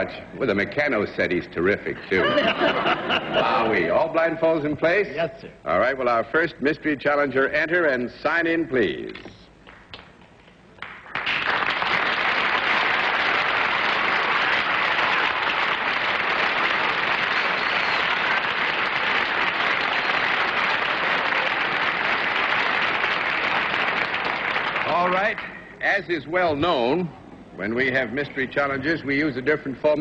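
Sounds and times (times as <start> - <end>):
audience applauding: 10.8 - 25.5.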